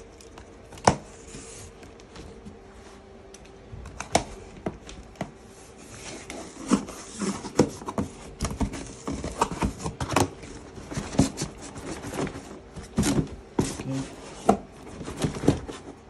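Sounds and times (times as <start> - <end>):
cardboard flaps scraping: 5.4 - 16.0.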